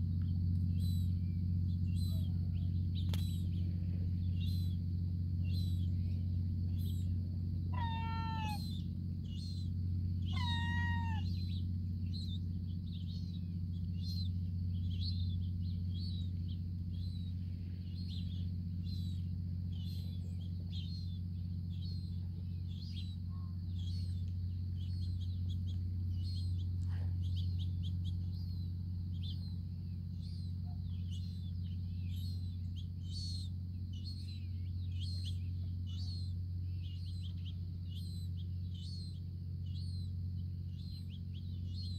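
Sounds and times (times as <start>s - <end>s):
steady low hum: 0.0s - 41.9s
young gull begging calls: 1.9s - 3.4s, 7.7s - 12.4s, 32.1s - 40.1s.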